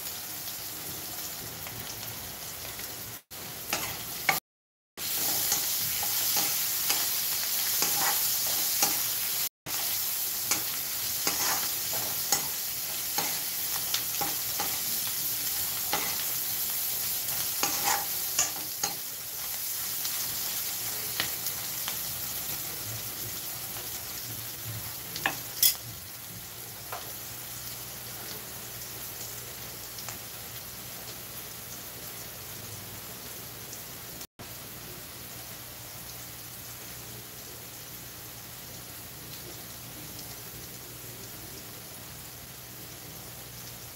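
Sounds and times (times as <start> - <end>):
vegetables sizzling in oil: 0.0 - 4.4, 5.0 - 43.9
metal spatula scraping pan: 7.7 - 9.1, 10.5 - 13.4, 17.6 - 19.0.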